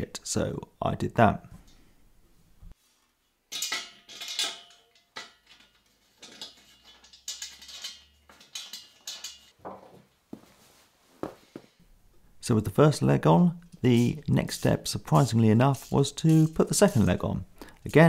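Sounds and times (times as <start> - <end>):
steel parts clinking and knocking: 3.5 - 9.6.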